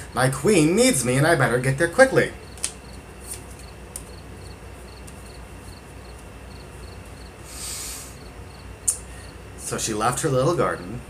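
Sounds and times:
low steady hum: 0:00.0 - 0:11.0
cricket chirping: 0:02.4 - 0:09.4
card rustle: 0:02.5 - 0:04.2.

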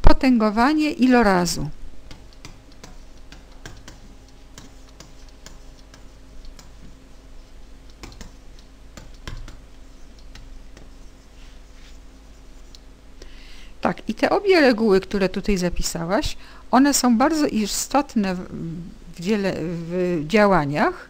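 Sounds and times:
low electrical hum: 0:00.0 - 0:21.0
stylus tapping on writing surface: 0:02.1 - 0:07.0, 0:07.9 - 0:09.6.

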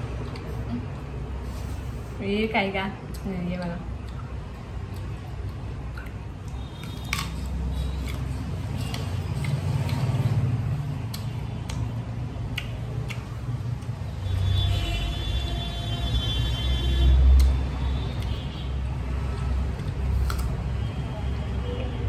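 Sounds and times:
chewing clicks and smacks: 0:03.0 - 0:14.0, 0:17.3 - 0:18.5, 0:19.2 - 0:20.6
person eating fruit: 0:03.1 - 0:14.0, 0:19.3 - 0:20.6.

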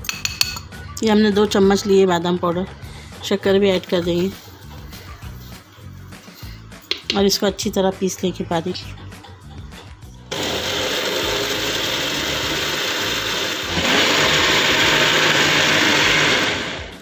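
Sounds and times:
blender running: 0:10.3 - 0:17.0.

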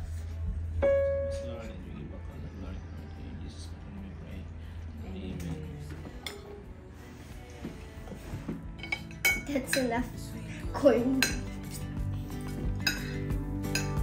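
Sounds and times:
cutlery clinking on ceramic dishes: 0:08.8 - 0:09.9, 0:11.2 - 0:14.0.

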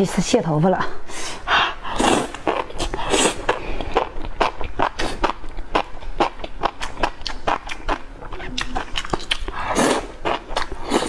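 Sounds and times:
wet smacking and chewing: 0:02.1 - 0:11.0.

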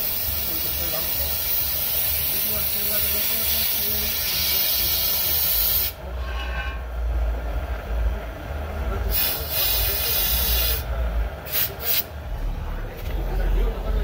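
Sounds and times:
torch flame hissing bursts: 0:00.0 - 0:06.0, 0:09.0 - 0:12.1.

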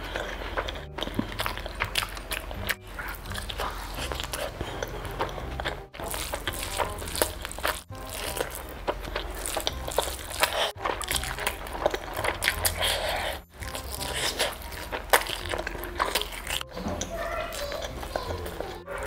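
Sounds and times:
wet chewing and mouth smacks: 0:00.0 - 0:19.0.

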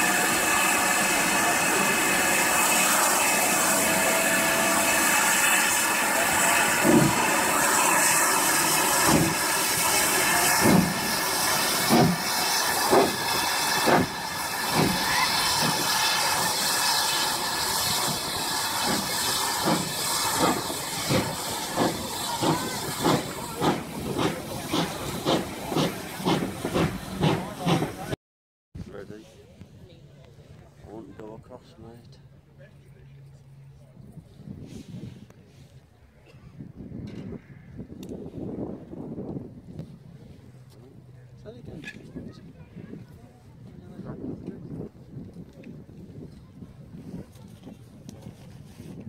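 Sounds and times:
steam hissing: 0:00.0 - 0:28.2
steam locomotive exhaust beats: 0:00.0 - 0:28.2.

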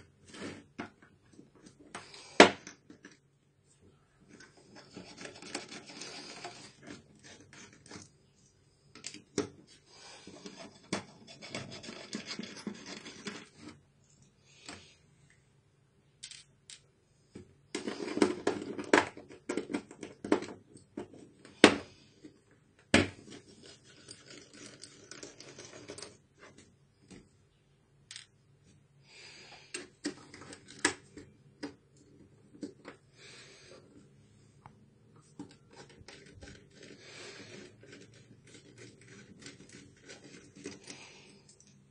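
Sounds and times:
plastic case scraping and rubbing: 0:00.0 - 0:02.2, 0:04.3 - 0:08.2, 0:09.2 - 0:13.8, 0:17.8 - 0:22.4, 0:35.2 - 0:41.1.

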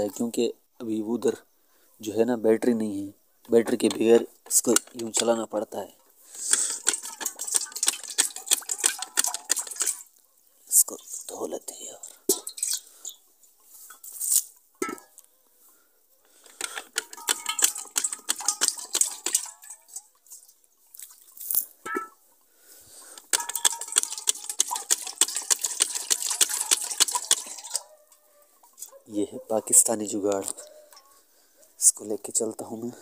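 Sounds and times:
metal pot clinking: 0:03.7 - 0:05.6, 0:06.5 - 0:10.1, 0:12.3 - 0:12.9, 0:14.8 - 0:15.1, 0:16.4 - 0:20.4, 0:21.8 - 0:22.2, 0:23.2 - 0:29.0, 0:30.4 - 0:31.1
water sloshing in a pot: 0:03.8 - 0:05.6, 0:06.7 - 0:10.1, 0:12.0 - 0:13.2, 0:16.5 - 0:21.3, 0:23.2 - 0:28.8.

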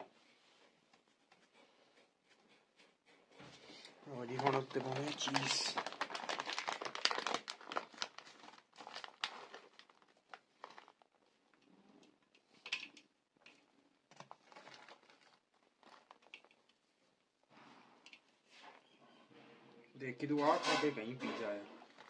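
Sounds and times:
plastic bag crinkling: 0:04.2 - 0:11.4, 0:14.1 - 0:16.8, 0:21.8 - 0:22.0.

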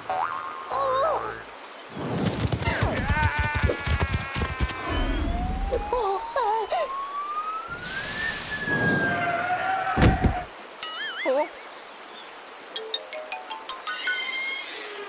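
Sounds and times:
rising whistle-like tone: 0:06.7 - 0:09.4.

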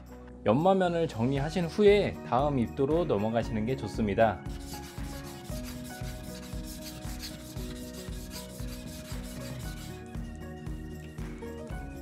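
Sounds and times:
knife rasping on whetstone: 0:04.5 - 0:10.0.

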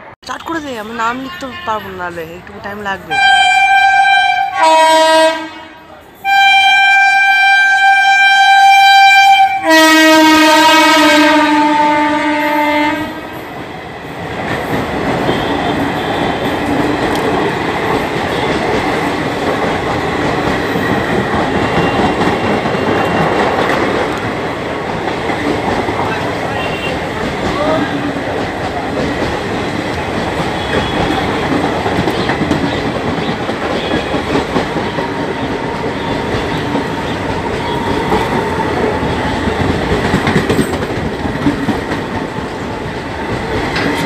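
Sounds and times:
train rumble and wheel clatter: 0:00.0 - 0:44.0
locomotive horn: 0:03.1 - 0:13.4, 0:15.2 - 0:16.6, 0:26.5 - 0:28.1.

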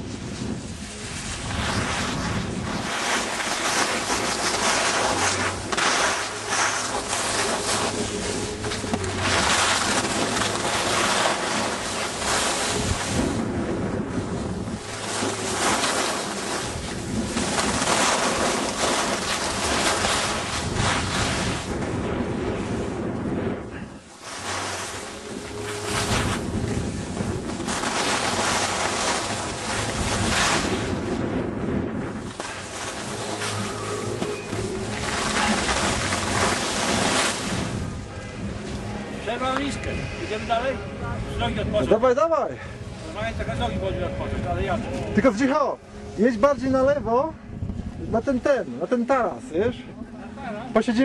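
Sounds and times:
skis scraping on snow: 0:00.0 - 0:21.8, 0:22.6 - 0:37.8
wind buffeting microphone: 0:00.0 - 0:51.0.

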